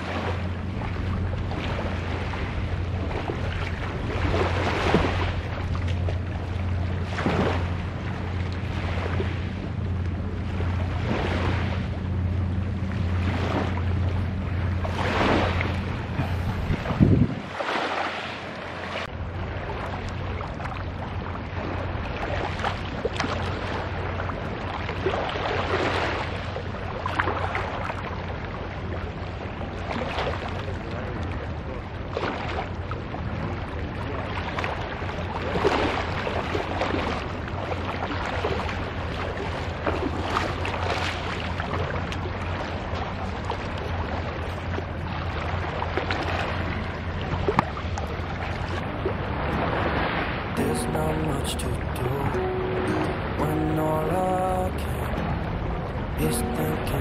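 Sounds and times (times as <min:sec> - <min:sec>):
low rumble: 0:00.0 - 0:17.6, 0:41.2 - 0:57.0
waves lapping on shingle: 0:00.0 - 0:57.0.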